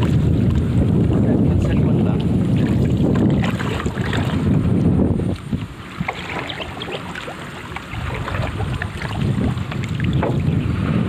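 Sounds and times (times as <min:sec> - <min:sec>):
paddle splashing in water: 0:00.0 - 0:11.0
wind rumble on microphone: 0:00.0 - 0:11.0.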